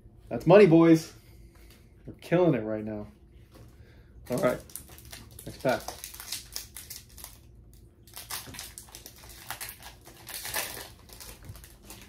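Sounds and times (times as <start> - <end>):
foil wrapper crinkling: 4.3 - 12.0.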